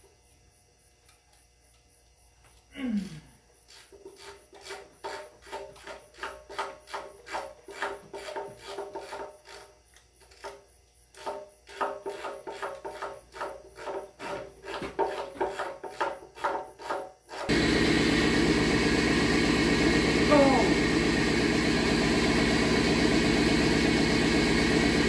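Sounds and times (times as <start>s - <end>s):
loud steady machine noise: 17.5s - 25.0s.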